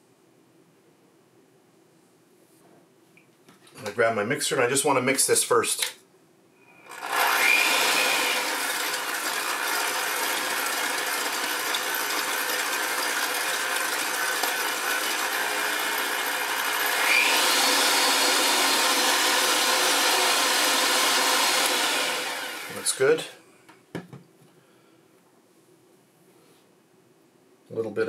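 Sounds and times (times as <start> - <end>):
electric hand mixer running: 6.8 - 23.3.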